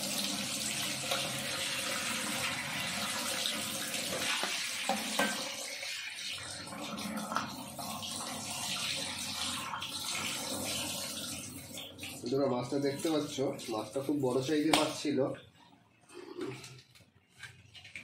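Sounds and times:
tap water splashing in sink: 3.4s - 5.6s, 6.2s - 15.1s.

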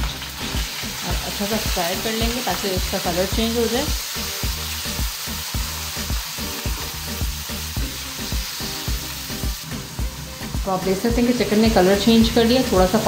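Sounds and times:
chicken sizzling in hot oil: 0.0s - 13.0s
regular low thumps: 8.9s - 12.4s.

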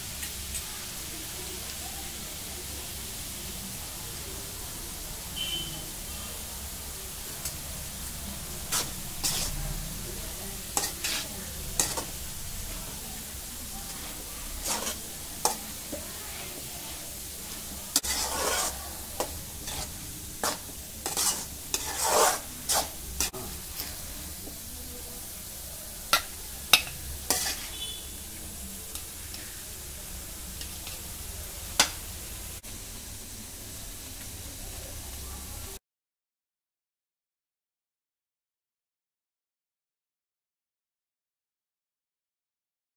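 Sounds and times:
food sizzling in a pan: 0.0s - 35.8s
metal spatula scraping pan: 8.4s - 9.8s, 10.6s - 13.0s, 13.6s - 24.1s, 26.1s - 28.2s.

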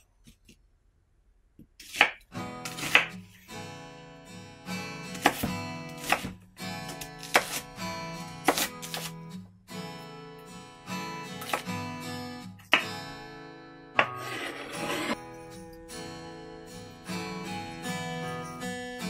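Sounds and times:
knife chopping on wooden board: 1.8s - 3.1s, 5.1s - 6.4s, 7.2s - 7.6s, 8.4s - 9.1s, 11.4s - 11.6s
acoustic guitar music: 2.3s - 19.0s.

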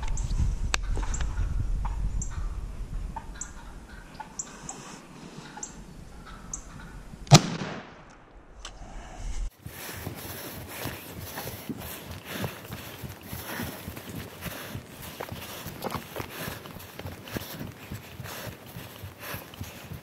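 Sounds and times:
turkey calls: 3.2s - 7.2s
shotgun blast: 7.3s - 8.3s.

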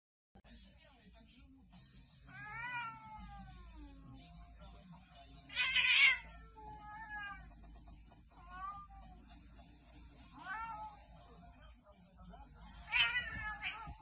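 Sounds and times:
cat yowling: 2.3s - 3.8s, 5.5s - 7.5s, 10.4s - 11.0s, 12.8s - 14.0s
cat hissing: 5.5s - 7.5s, 12.8s - 14.0s.

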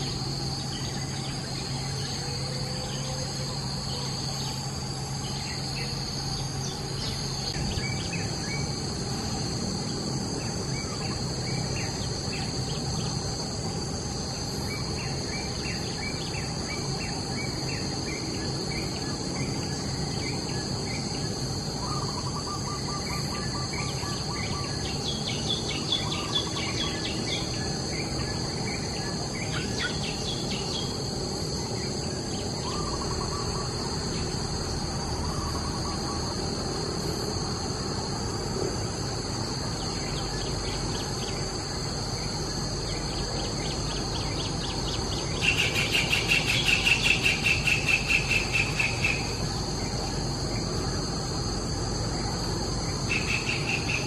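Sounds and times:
insects droning: 0.0s - 54.0s
bird trill: 14.6s - 34.6s, 42.8s - 49.4s, 53.1s - 54.0s
bird chirps: 20.2s - 31.0s.

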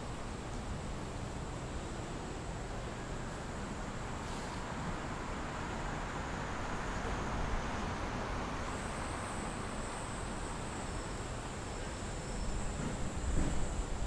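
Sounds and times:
road traffic: 0.0s - 14.0s.

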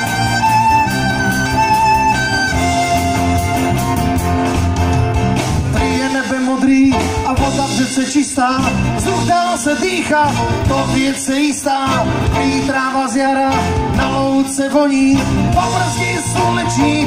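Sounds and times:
fiddle melody: 0.0s - 14.2s
bass line: 0.0s - 17.0s
man singing: 5.7s - 17.0s.

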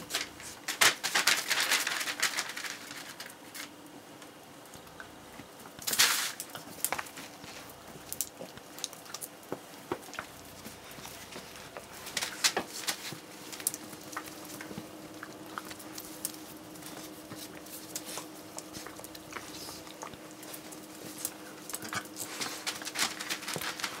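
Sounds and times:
faint steady hum: 0.0s - 24.0s
dog chewing: 6.4s - 24.0s.

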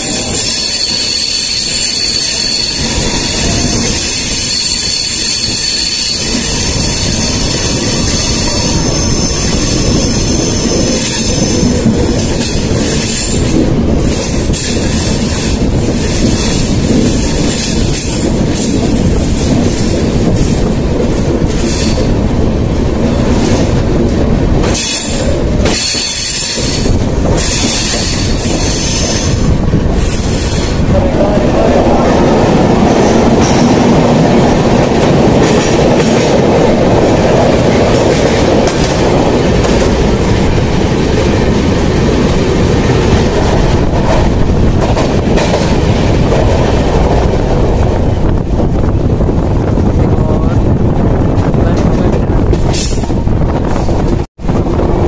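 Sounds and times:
high wheel squeal: 0.0s - 11.8s, 24.8s - 29.4s
train wheels rumbling on rail: 0.0s - 55.0s.

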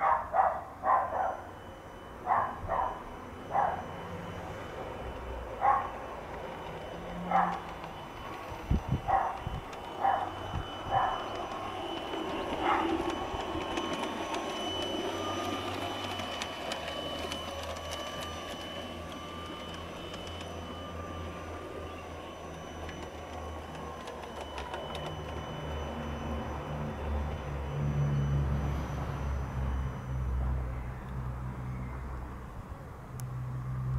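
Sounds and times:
electric motor whine: 0.8s - 33.9s
wheels clicking over rail joints: 5.6s - 21.7s, 22.5s - 26.1s.

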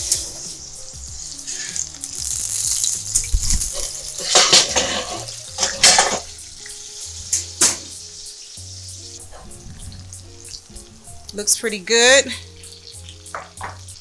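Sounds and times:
faint background music: 0.0s - 14.0s
sizzling in a hot pan: 0.0s - 14.0s
cookware clattering: 3.8s - 6.3s, 13.3s - 13.9s.

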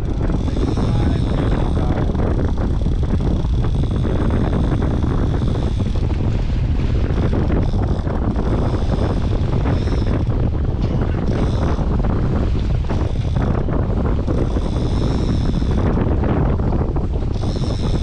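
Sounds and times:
outboard motors running: 0.0s - 18.0s
wind buffeting microphone: 0.0s - 18.0s.

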